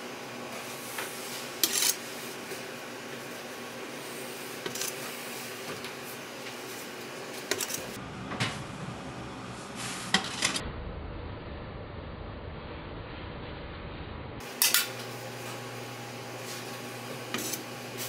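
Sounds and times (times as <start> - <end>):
kitchen room hum: 0.0 - 18.0
metal spatula clinking and scraping: 1.6 - 2.1, 4.6 - 5.1, 7.4 - 8.0, 14.6 - 15.0.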